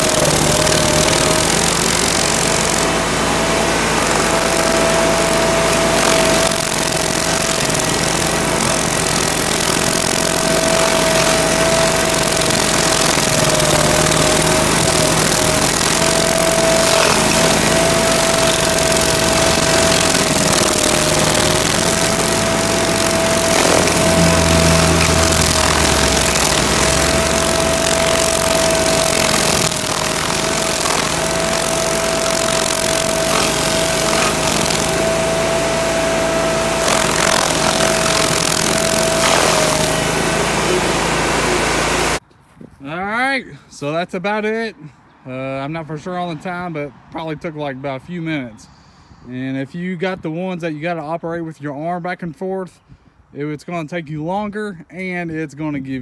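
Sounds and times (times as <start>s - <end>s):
steady machine whine: 0.0s - 42.2s
stump grinder grinding stump: 0.0s - 42.2s.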